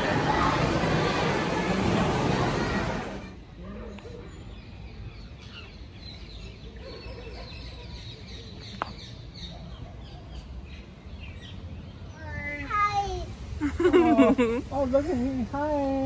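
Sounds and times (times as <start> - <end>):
small birds chirping: 3.3 - 12.7.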